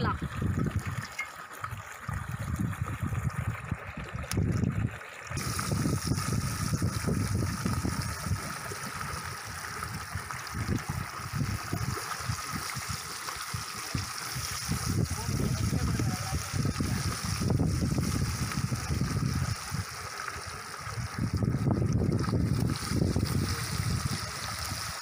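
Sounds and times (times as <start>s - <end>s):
flowing stream: 0.0s - 25.0s
food sizzling in hot oil: 5.4s - 25.0s.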